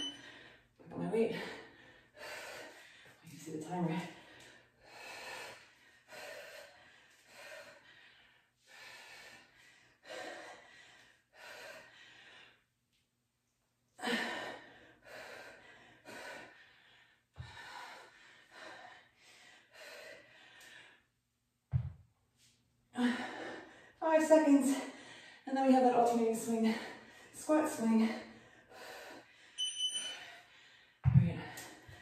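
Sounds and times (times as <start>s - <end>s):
woman breathing hard: 0.0s - 3.2s, 4.1s - 12.7s, 14.0s - 21.2s, 23.0s - 24.0s, 28.1s - 32.0s.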